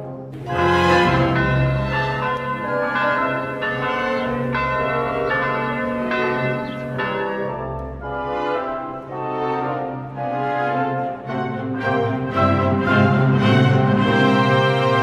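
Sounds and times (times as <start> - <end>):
church bells ringing: 0.0 - 10.0.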